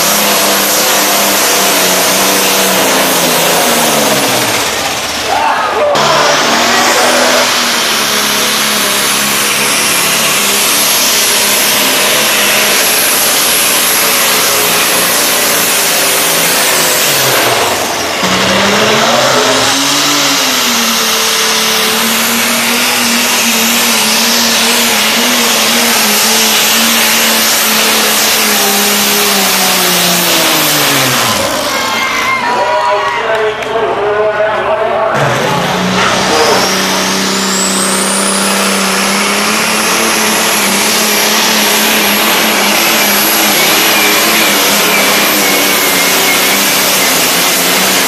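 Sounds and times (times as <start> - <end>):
diesel engine running under load: 0.0 - 48.0.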